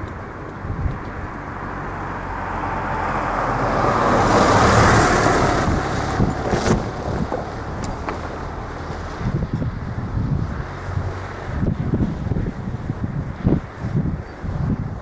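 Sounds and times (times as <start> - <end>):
car passing by: 0.8 - 12.5.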